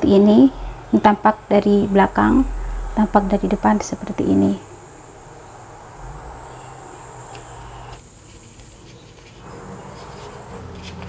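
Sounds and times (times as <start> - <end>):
low hum: 0.0 - 8.0
high-pitched insect trill: 0.3 - 8.0.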